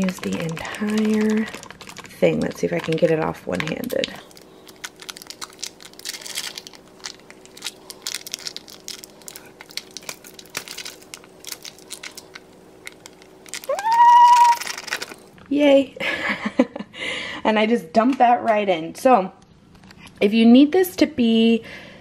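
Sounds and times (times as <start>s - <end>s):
foil wrapper crinkling: 0.0s - 15.4s.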